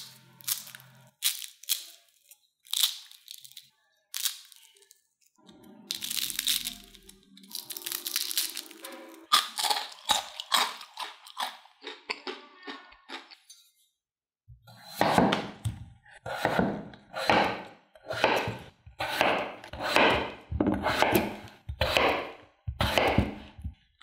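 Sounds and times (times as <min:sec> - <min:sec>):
crispy snacks crunching: 0:00.0 - 0:13.5.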